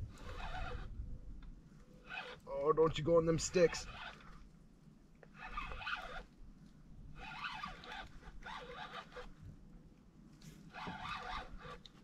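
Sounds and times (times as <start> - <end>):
fishing reel cranking: 0.1 - 0.9, 2.0 - 2.5, 3.4 - 4.3, 5.3 - 6.3, 7.2 - 9.3, 10.7 - 12.0.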